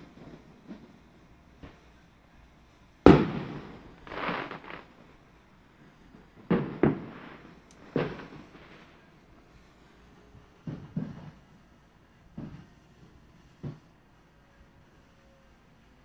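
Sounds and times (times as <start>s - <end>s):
fireworks rumbling crackle: 0.0s - 14.2s
fireworks bangs: 3.0s - 5.2s, 6.1s - 9.1s.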